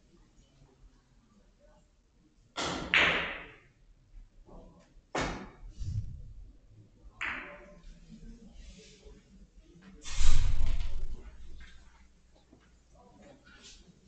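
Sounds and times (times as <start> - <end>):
billiard ball clacks: 7.2 - 7.7.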